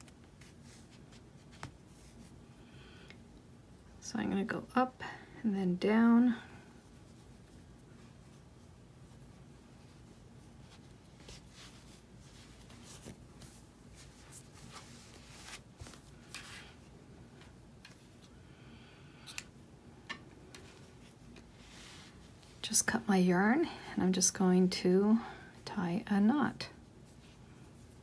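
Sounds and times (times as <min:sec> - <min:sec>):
yarn swishing through fabric: 0:06.8 - 0:18.2.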